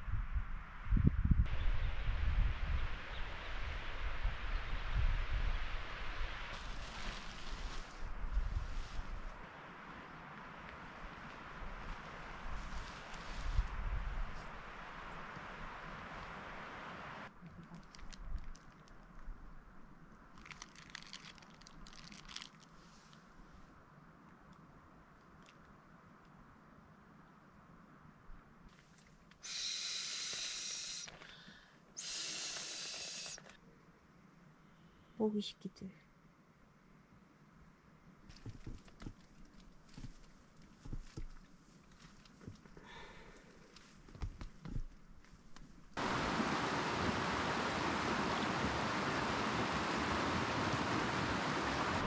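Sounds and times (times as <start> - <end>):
person blowing into pillow valve: 29.4 - 31.1, 32.0 - 33.5
creek rushing over stones: 46.0 - 52.0.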